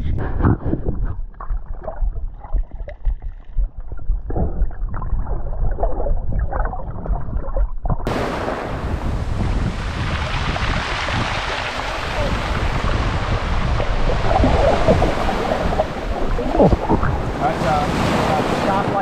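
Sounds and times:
muffled underwater gurgles: 0.0s - 8.1s, 11.1s - 19.0s
wind on microphone: 0.0s - 19.0s
small waves washing on shore: 8.1s - 19.0s.

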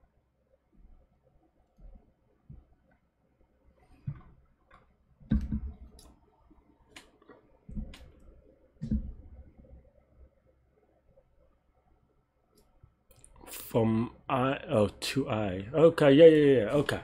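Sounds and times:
dull low thump: 5.3s - 5.9s, 8.8s - 9.4s.

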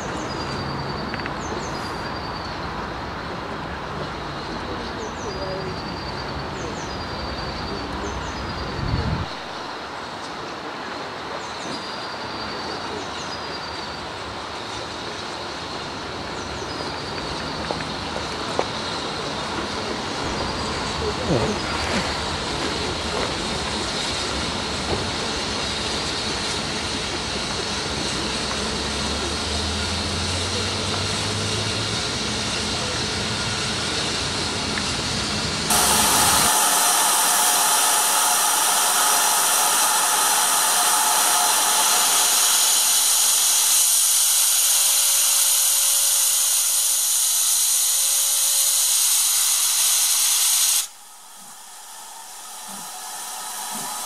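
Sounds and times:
steam hissing: 0.0s - 54.0s
low rumble: 20.0s - 23.9s, 50.9s - 54.0s.

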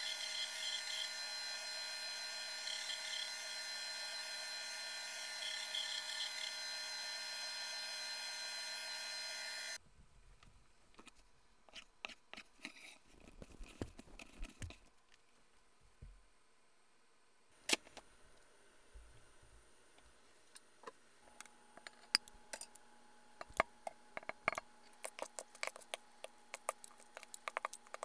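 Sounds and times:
mixer motor whine: 0.0s - 9.8s.

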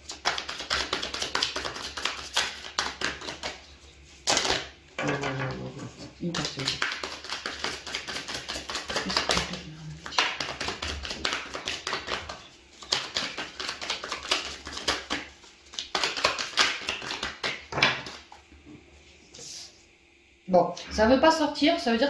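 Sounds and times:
cards shuffled by hand: 0.0s - 4.7s, 6.4s - 18.3s.

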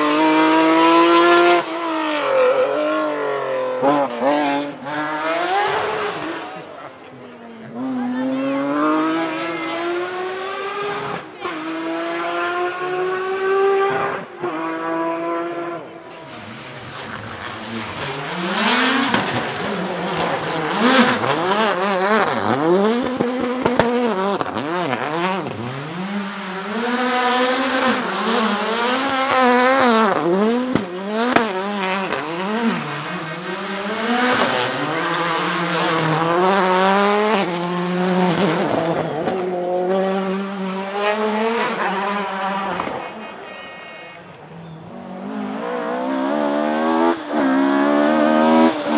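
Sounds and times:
rally car engines revving: 0.0s - 48.9s
tyre squeal: 43.1s - 45.4s.

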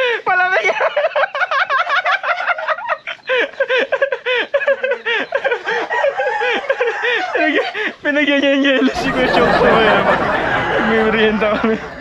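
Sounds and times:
poultry flock calling: 8.8s - 12.0s.

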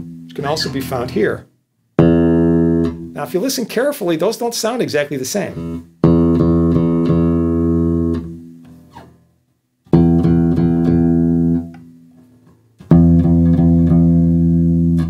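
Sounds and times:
bass guitar notes plucked: 0.0s - 3.3s, 5.5s - 8.9s, 9.9s - 12.0s, 12.8s - 15.0s.

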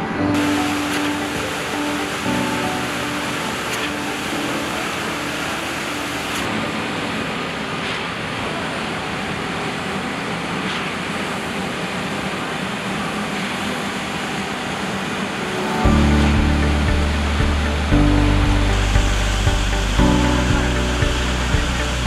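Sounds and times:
concrete pump running: 0.4s - 22.0s.

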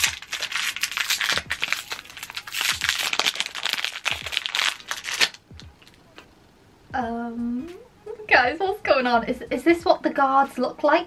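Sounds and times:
wrapper cracking: 0.0s - 6.0s
plastic wrapper crinkling: 0.0s - 6.2s.

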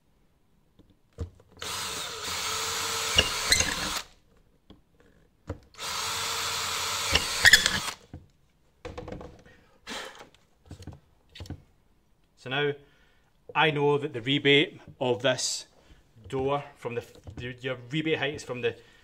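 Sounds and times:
cordless drill boring: 1.6s - 4.1s, 5.8s - 8.0s
sharp drill clicks: 1.6s - 4.1s, 5.8s - 8.0s
handling knocks: 8.1s - 9.6s.

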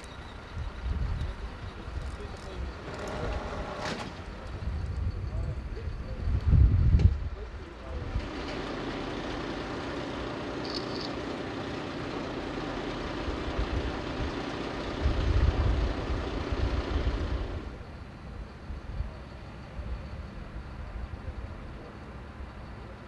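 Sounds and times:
heavy vehicle engine idling: 7.2s - 23.0s.

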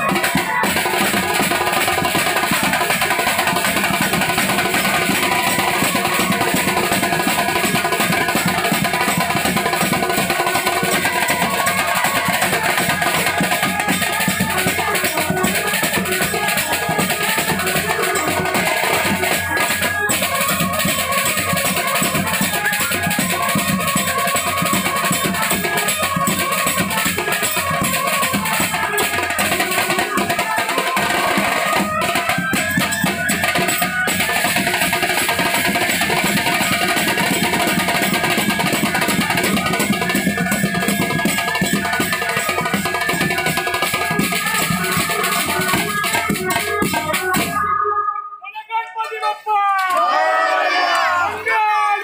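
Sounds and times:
drums beaten with sticks: 0.0s - 47.8s.

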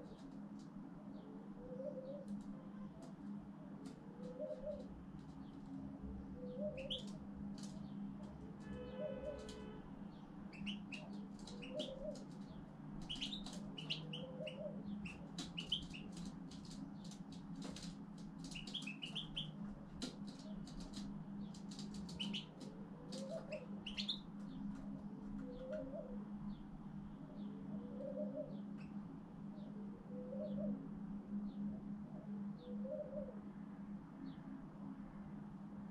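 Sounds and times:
low bird call: 6.4s - 7.8s, 10.5s - 16.2s, 18.5s - 21.0s, 21.7s - 24.4s
finch twittering chirps and trills: 6.5s - 7.9s, 10.5s - 24.9s.

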